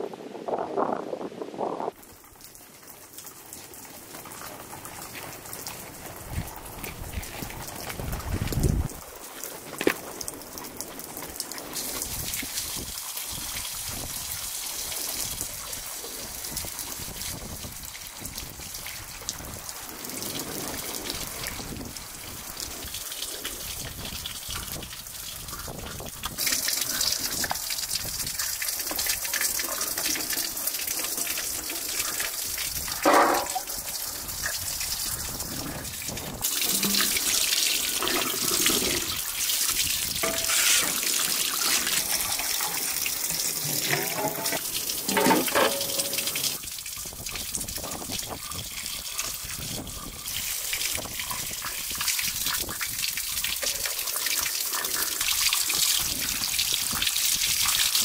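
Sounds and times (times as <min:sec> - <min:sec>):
tap water running into sink: 0:22.6 - 0:58.0
short clunk: 0:33.1 - 0:33.7.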